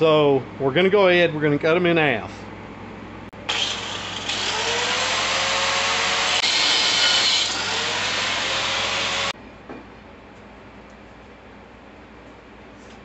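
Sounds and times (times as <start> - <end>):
cut-off wheel grinding steel: 3.4 - 9.4.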